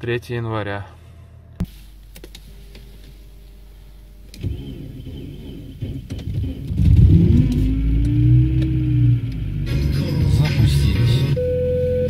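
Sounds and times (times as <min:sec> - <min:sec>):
car engine revving: 0:04.3 - 0:11.4.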